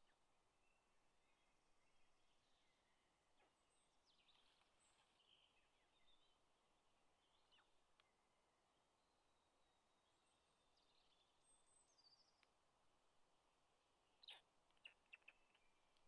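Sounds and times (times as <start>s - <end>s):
faint outdoor hiss: 0.0s - 16.0s
bird chirps and calls: 14.2s - 15.6s.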